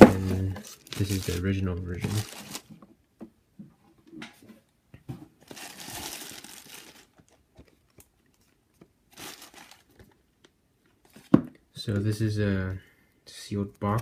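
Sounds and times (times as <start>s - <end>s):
plastic bag crinkling: 0.1s - 2.7s, 5.4s - 10.3s.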